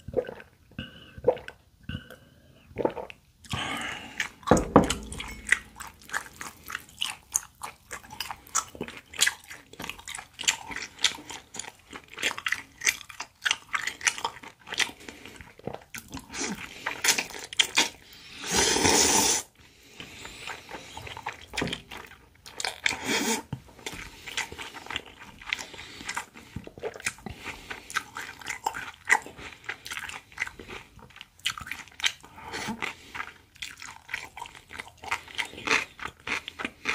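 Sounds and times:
wet crunchy chewing: 3.0 - 18.0, 20.0 - 36.9
slurping noodles: 14.7 - 21.4, 22.7 - 30.8.

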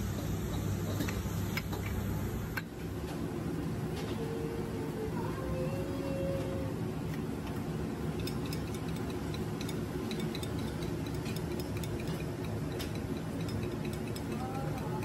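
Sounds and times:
low hum of kitchen machinery: 0.0 - 15.0
utensil clicking on ceramic plate: 8.1 - 15.0.

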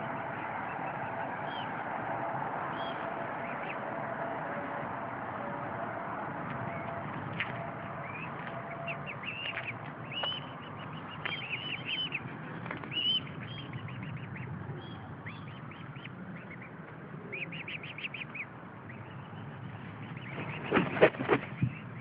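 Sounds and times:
swan cygnets peeping: 6.5 - 22.0.

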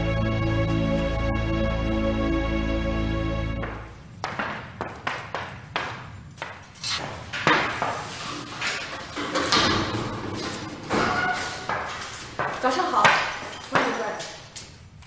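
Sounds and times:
footsteps on hard floor: 3.6 - 8.2, 10.9 - 14.7
metal cell gate clanking: 7.5 - 12.4.

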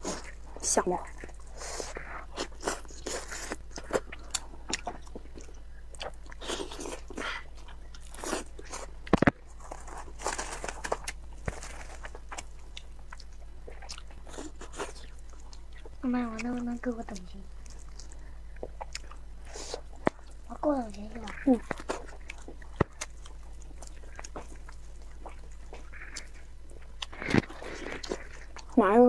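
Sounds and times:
wet chewing and lip-smacking: 0.0 - 28.9.

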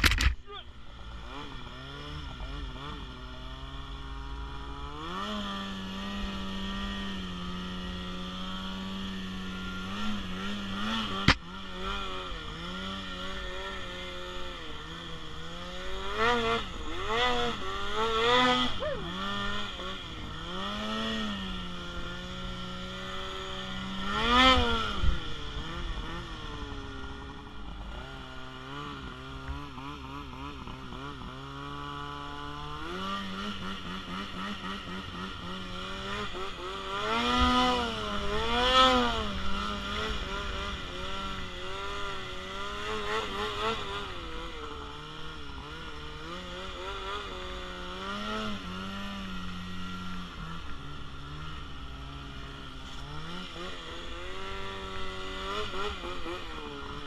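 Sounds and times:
sharp click: 0.0 - 0.4
snowmobile engine revving: 0.0 - 57.0.

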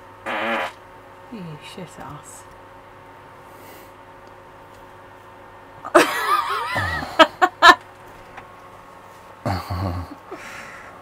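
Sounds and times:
person giggling: 5.8 - 7.8, 9.5 - 10.5.

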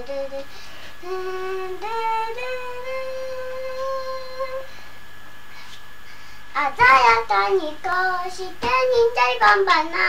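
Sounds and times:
girl singing long notes: 0.0 - 4.7.

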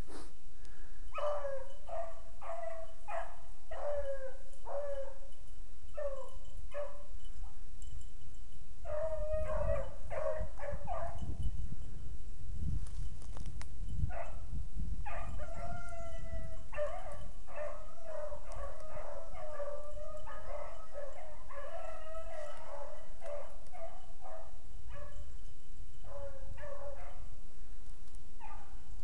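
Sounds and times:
dogs baying and howling: 1.1 - 5.3, 5.9 - 7.1, 8.8 - 11.4, 15.0 - 25.2, 26.0 - 27.3.

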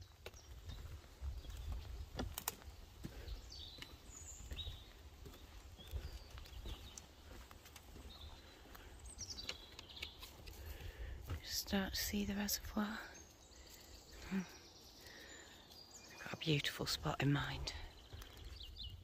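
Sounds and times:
birds chirping: 0.0 - 19.0
footsteps on metal grating: 0.2 - 8.9.

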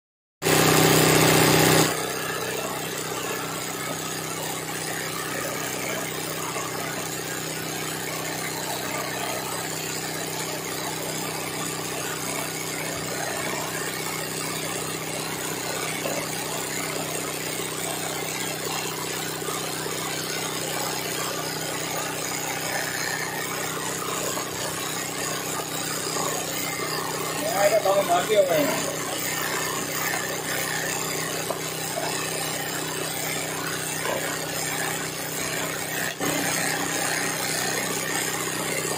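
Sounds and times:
sewing machine stitching: 0.4 - 38.9.

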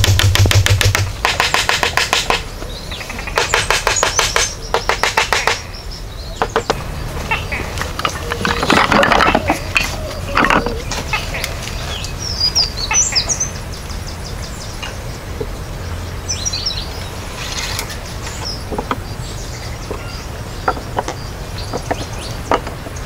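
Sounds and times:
wooden planks knocking: 0.0 - 2.5, 3.3 - 5.7, 6.4 - 6.8, 7.8 - 11.5, 17.8 - 19.1, 19.8 - 23.0
small bird chirping: 9.4 - 23.0.

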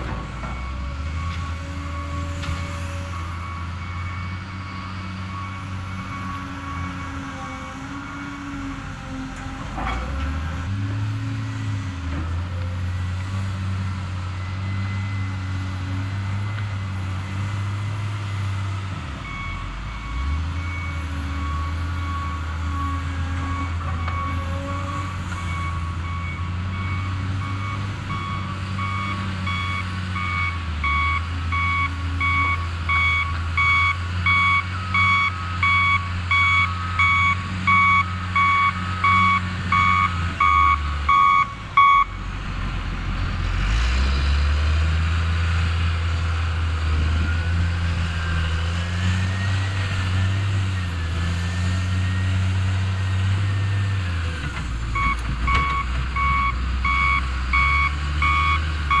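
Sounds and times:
excavator diesel engine running: 0.0 - 59.0
backup alarm beeping: 26.0 - 42.2, 55.0 - 59.0.

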